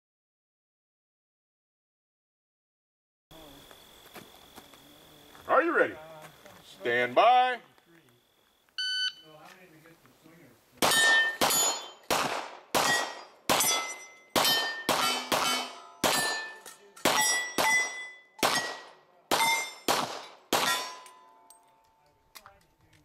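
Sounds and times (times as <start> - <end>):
handgun shots: 10.8 - 21.2
steel plate ringing: 10.9 - 12.1, 12.8 - 18.8, 19.4 - 19.9, 20.6 - 21.6.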